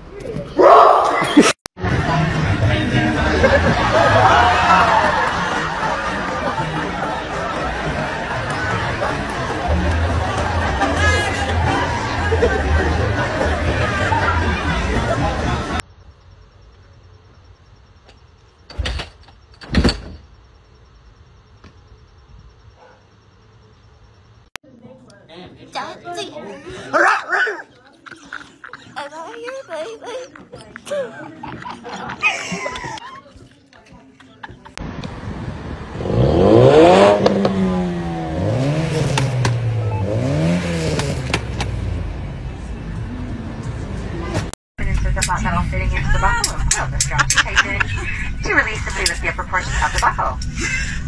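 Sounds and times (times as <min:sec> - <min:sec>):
car engine revving: 0:35.0 - 0:44.5.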